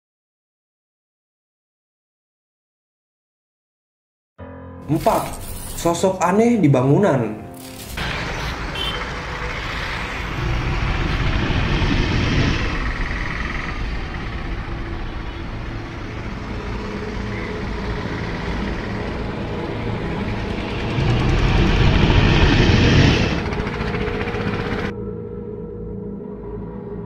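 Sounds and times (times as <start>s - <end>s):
low rumbling noise: 8.0s - 24.9s.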